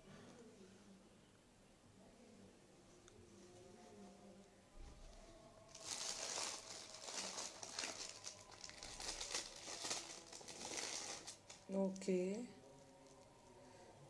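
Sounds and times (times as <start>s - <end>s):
plastic packets crinkling: 5.7s - 13.6s.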